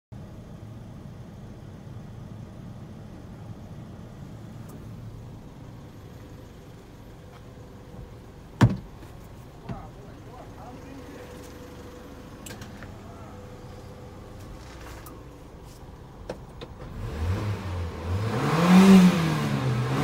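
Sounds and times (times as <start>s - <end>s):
truck engine idling: 0.2s - 16.8s
sharp thump: 8.6s - 8.9s.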